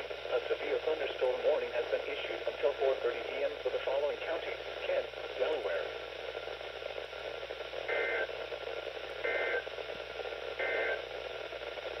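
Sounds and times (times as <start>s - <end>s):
radio static hiss: 0.0s - 12.0s
two-tone data bursts: 7.9s - 8.3s, 9.2s - 9.7s, 10.6s - 11.0s.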